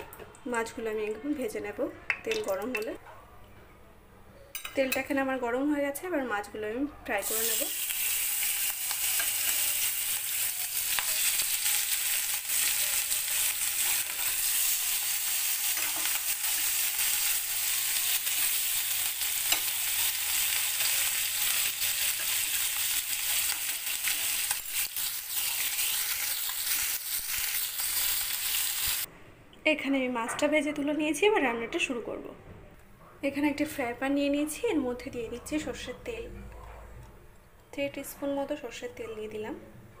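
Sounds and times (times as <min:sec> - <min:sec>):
fish frying in oil: 0:07.3 - 0:29.1.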